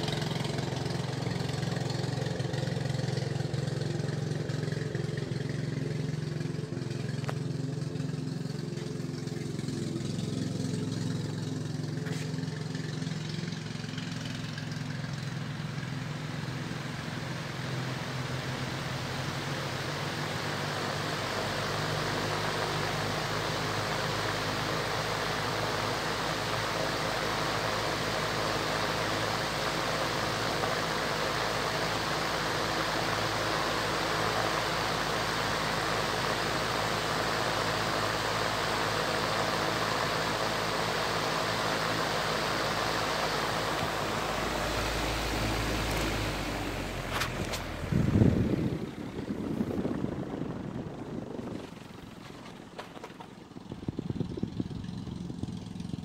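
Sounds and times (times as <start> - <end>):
exhaust fan running: 0.0 - 56.0
low rumble: 43.8 - 52.8.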